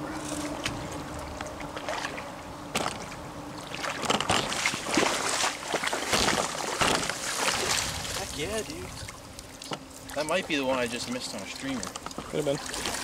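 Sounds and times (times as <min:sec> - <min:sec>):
stream water rushing: 0:03.6 - 0:11.8
fish splashing at surface: 0:03.7 - 0:08.3.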